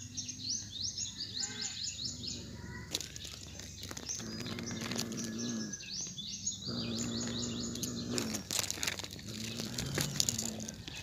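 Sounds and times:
birds chirping: 0.0s - 11.0s
dry leaves crackling: 2.4s - 5.7s, 6.9s - 11.0s
cat growling low: 4.2s - 5.9s, 6.6s - 11.0s.

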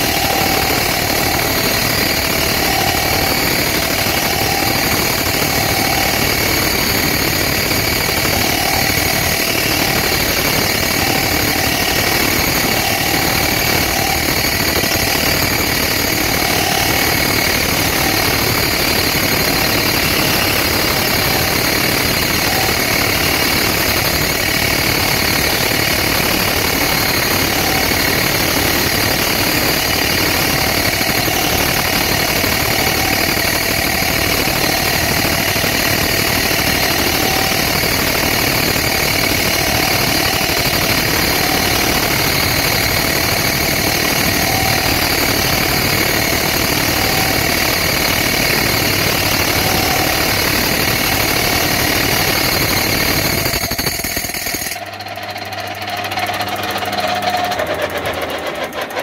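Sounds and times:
lathe motor humming: 0.0s - 59.0s
lathe tool cutting metal: 0.0s - 59.0s.

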